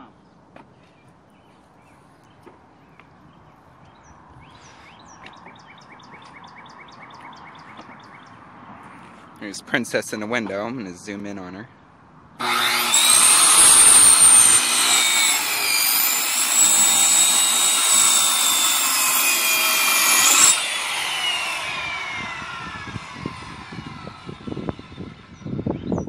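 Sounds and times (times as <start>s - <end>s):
circular saw cutting wood: 12.4s - 25.4s.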